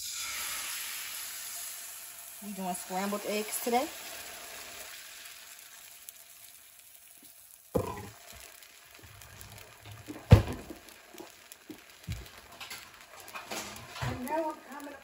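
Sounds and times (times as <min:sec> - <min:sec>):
eggs sizzling in a frying pan: 0:00.0 - 0:15.0
thump: 0:07.8 - 0:08.1, 0:10.1 - 0:10.8.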